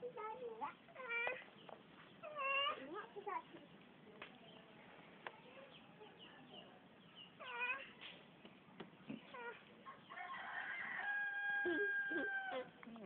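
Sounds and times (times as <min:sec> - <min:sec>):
long steady animal call: 0:09.1 - 0:12.7.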